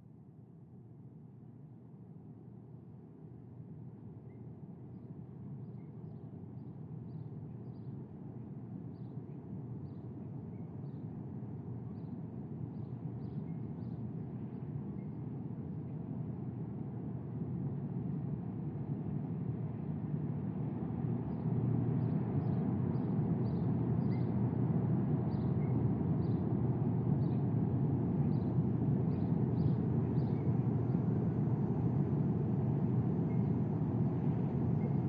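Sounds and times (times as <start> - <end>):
low outdoor rumble: 17.2 - 35.0.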